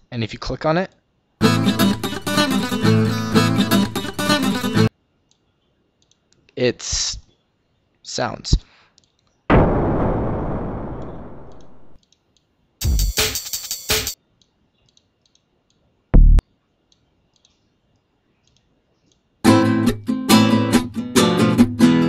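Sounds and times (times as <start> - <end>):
acoustic guitar plucked notes: 1.4 - 4.9, 19.5 - 22.0
faint mouse clicks: 8.6 - 9.4, 14.4 - 15.9, 16.8 - 19.3
explosion sound effect: 9.5 - 12.0.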